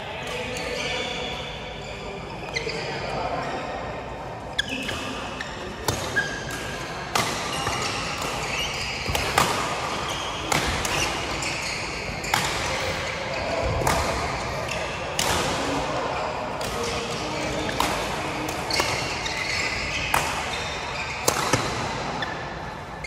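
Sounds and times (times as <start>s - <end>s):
rackets hitting shuttlecock: 5.8s - 22.2s.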